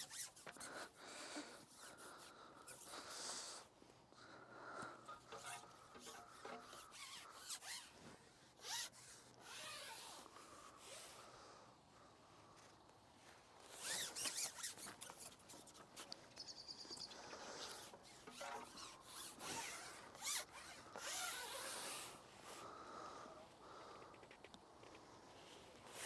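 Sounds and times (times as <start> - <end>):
fishing pole scraping: 0.0 - 3.7, 4.8 - 11.2, 13.6 - 16.5, 17.1 - 22.7.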